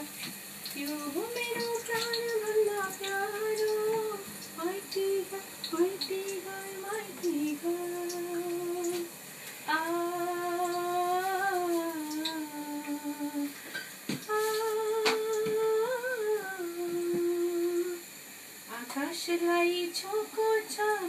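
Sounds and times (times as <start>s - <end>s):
woman humming: 9.7s - 13.5s, 14.2s - 18.0s.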